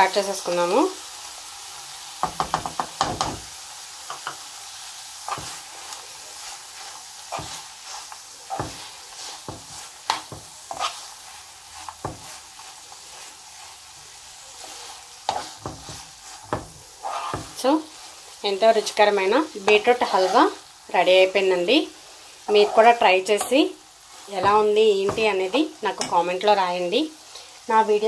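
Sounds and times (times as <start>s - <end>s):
halwa sizzling in a pan: 0.0s - 28.0s
spatula scraping a pan: 5.2s - 26.2s.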